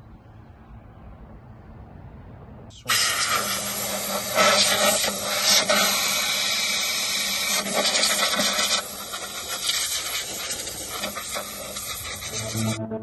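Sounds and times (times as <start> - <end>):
compressed air blow gun hissing: 2.9 - 12.5.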